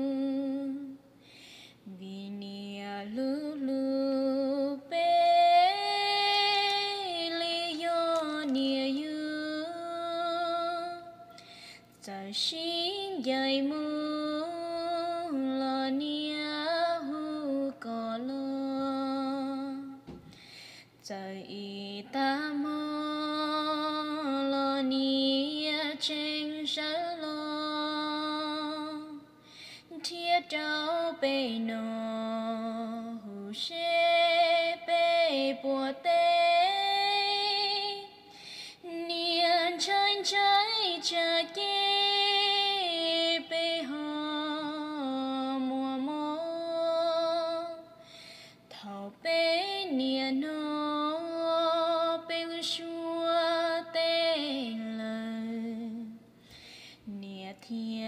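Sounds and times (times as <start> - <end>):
woman singing: 0.0 - 1.1, 1.8 - 20.4, 21.0 - 48.0, 48.6 - 56.3, 57.0 - 58.0
singer breathing: 1.1 - 1.9, 11.3 - 11.9, 20.2 - 21.0, 29.4 - 29.9, 38.2 - 38.9, 48.0 - 48.7, 56.3 - 57.1.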